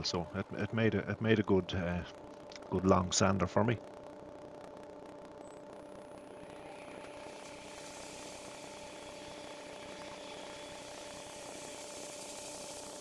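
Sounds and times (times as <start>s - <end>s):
wood lathe humming: 6.2s - 13.0s
sanding hiss: 7.4s - 13.0s.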